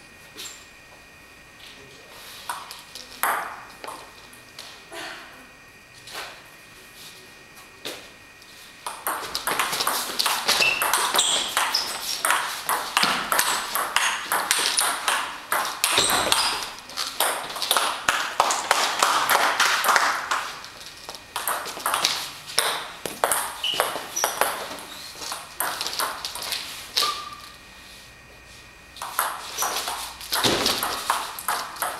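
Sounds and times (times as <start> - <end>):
short high squeaks: 10.6 - 12.1, 15.9 - 16.7, 23.6 - 25.2, 27.0 - 27.6.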